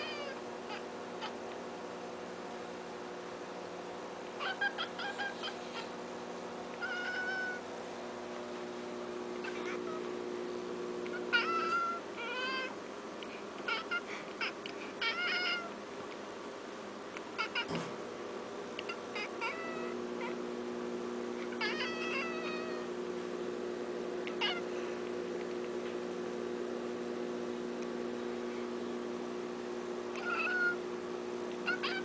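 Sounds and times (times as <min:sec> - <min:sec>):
cat meowing: 0:00.0 - 0:01.4, 0:04.4 - 0:05.9, 0:06.8 - 0:07.6, 0:09.4 - 0:10.1, 0:11.1 - 0:12.8, 0:13.6 - 0:15.8, 0:17.4 - 0:17.9, 0:18.8 - 0:20.4, 0:21.5 - 0:22.9, 0:24.3 - 0:24.7, 0:30.2 - 0:30.8, 0:31.6 - 0:32.0
steady low hum: 0:00.0 - 0:32.0.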